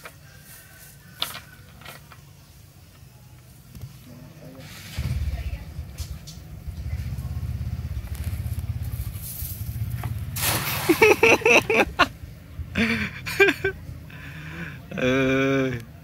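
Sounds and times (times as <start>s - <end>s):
cast net splashing into water: 10.3s - 11.4s.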